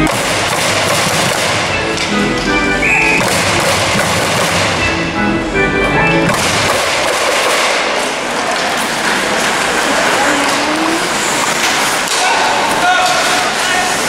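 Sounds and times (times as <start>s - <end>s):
held musical notes: 1.7s - 6.4s
crowd cheering and shouting: 8.2s - 14.0s.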